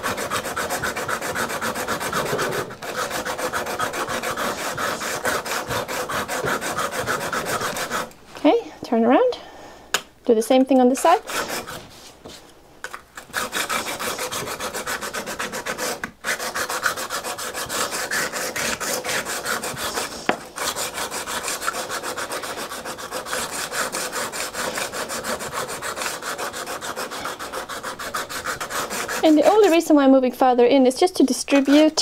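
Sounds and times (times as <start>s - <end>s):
scraper rubbing on sharpening stone: 0.0s - 8.1s, 11.2s - 11.8s, 13.2s - 29.9s.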